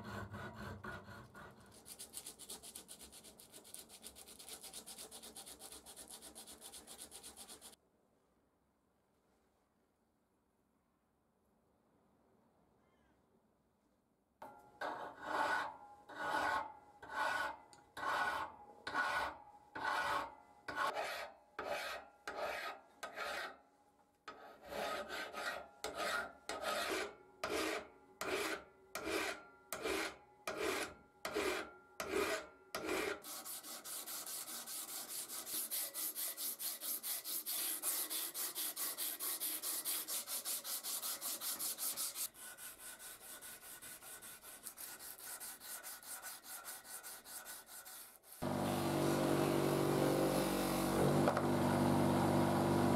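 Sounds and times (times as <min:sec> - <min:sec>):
hand file rasping on steel: 0:00.0 - 0:07.8, 0:14.8 - 0:23.6, 0:24.3 - 0:48.5.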